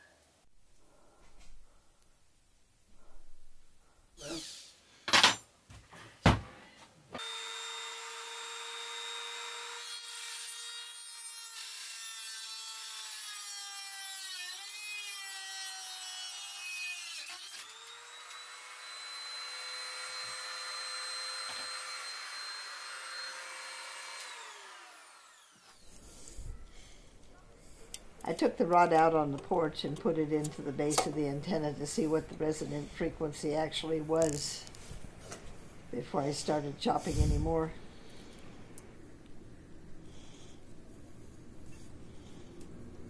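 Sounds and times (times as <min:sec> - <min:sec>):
rotary tool grinding steel: 0:07.2 - 0:26.4.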